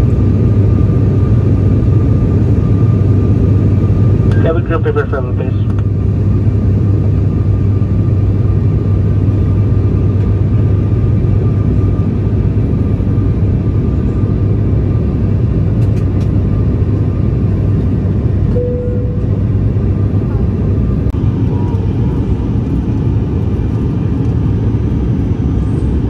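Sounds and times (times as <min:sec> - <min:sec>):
airliner cabin engine drone: 0:00.0 - 0:26.0
short faint tone: 0:18.5 - 0:19.5.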